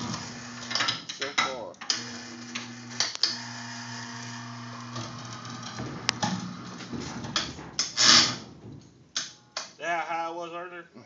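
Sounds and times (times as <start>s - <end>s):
hoist motor humming: 0.0s - 9.6s
loud scraping thump: 3.4s - 9.5s
metal boat knocking and clicking: 5.0s - 9.8s.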